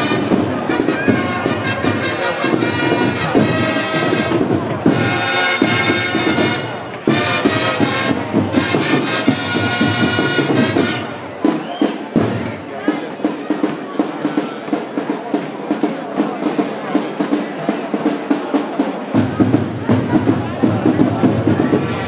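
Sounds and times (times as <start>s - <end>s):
long held wind instrument notes: 0.0s - 11.8s
steady drumming: 0.0s - 22.0s.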